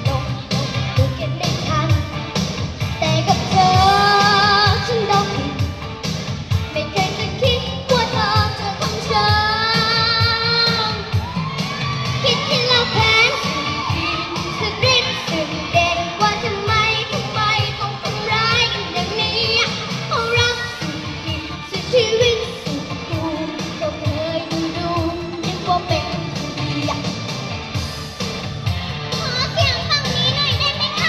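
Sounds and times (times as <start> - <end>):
girl singing into microphone: 0.0 - 2.2, 2.9 - 5.7, 6.7 - 11.2, 12.2 - 27.2
pop backing track with beat: 0.0 - 31.0.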